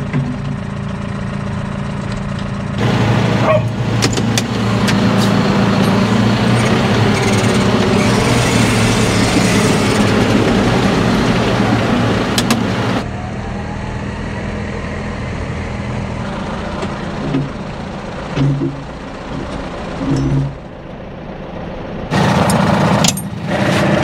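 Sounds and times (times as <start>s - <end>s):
tractor diesel engine running: 0.0s - 24.0s.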